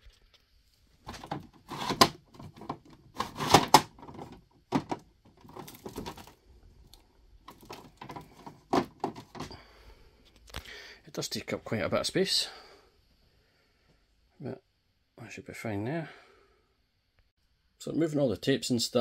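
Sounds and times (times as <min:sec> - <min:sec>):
hard plastic clicks and knocks: 0:01.1 - 0:06.3, 0:07.5 - 0:09.5.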